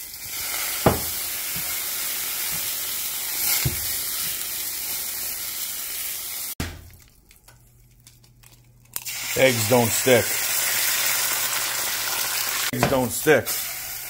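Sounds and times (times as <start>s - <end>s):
water sizzling in hot pan: 0.0s - 6.6s, 9.0s - 12.7s, 13.4s - 14.0s.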